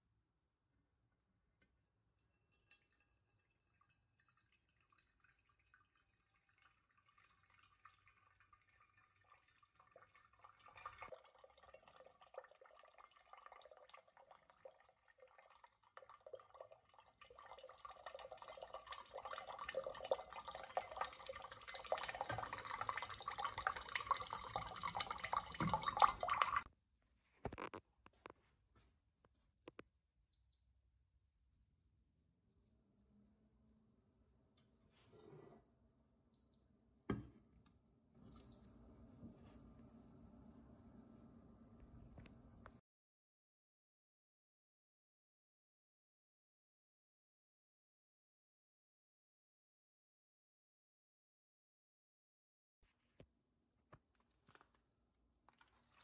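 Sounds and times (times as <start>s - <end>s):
water dripping: 1.6s - 26.7s
water crackling: 2.4s - 26.7s, 54.0s - 54.8s, 55.4s - 56.0s.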